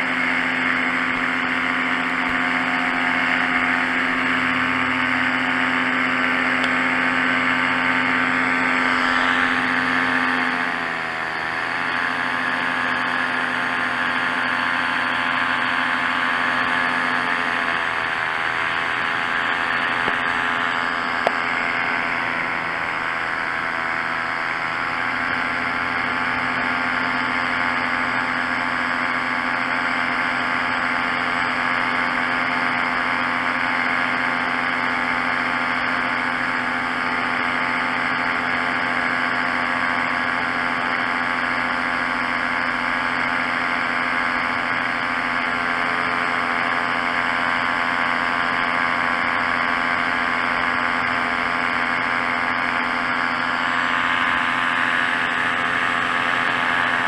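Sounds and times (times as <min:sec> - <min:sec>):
paramotor engine and propeller: 0:00.0 - 0:57.0.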